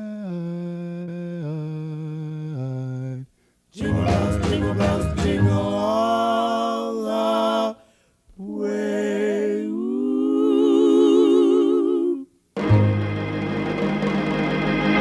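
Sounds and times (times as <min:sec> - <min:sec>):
group of people singing: 0:03.8 - 0:07.8, 0:08.4 - 0:12.3.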